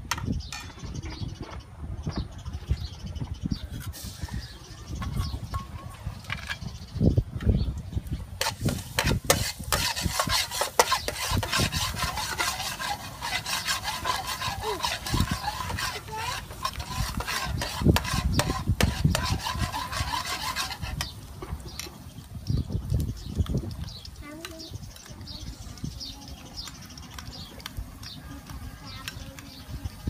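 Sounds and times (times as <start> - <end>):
metal spatula scraping a wok: 8.4 - 21.2.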